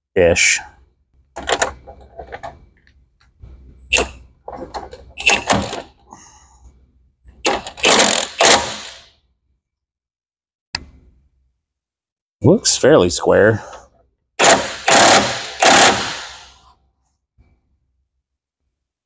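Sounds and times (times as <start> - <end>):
impact wrench hammering: 7.4 - 9.1, 14.4 - 16.5.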